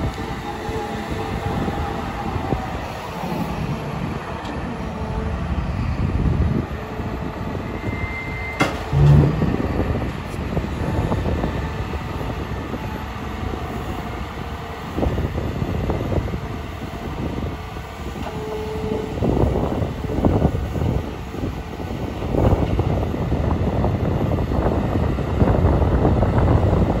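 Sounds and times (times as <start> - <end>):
excavator diesel engine running: 0.0 - 25.9
loud low thump: 8.9 - 10.1.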